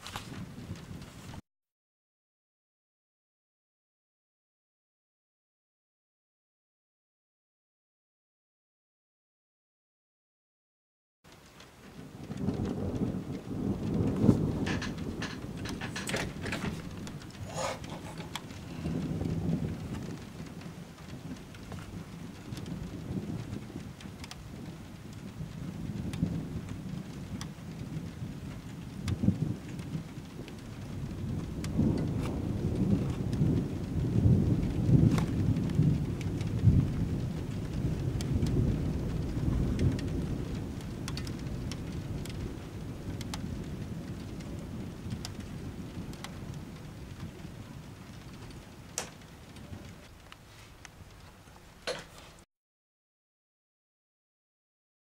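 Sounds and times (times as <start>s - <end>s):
steady rain: 0.0s - 1.4s, 11.3s - 52.5s
thunder rumbling: 0.0s - 1.4s, 11.4s - 52.4s
rain drop ticks: 11.3s - 52.4s.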